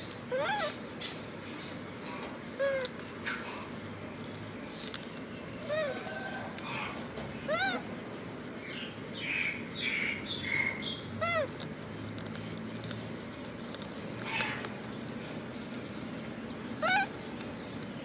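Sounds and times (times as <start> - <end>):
baby monkey high-pitched cries: 0.0 - 0.8, 2.6 - 3.1, 5.6 - 7.9, 10.5 - 11.7, 16.8 - 17.2.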